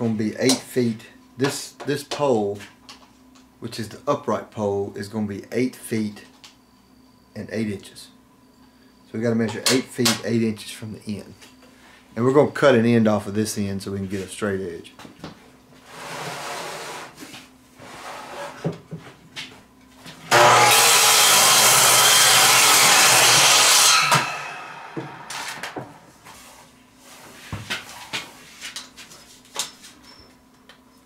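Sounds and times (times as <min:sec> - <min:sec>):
miter saw cutting wood: 0:20.3 - 0:25.8.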